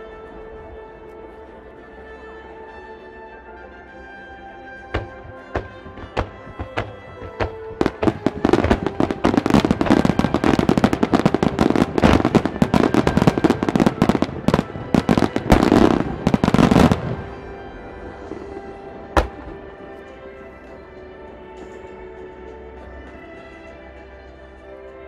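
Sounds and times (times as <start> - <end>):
music: 0.0 - 25.0
fireworks bangs and crackling: 4.9 - 20.0.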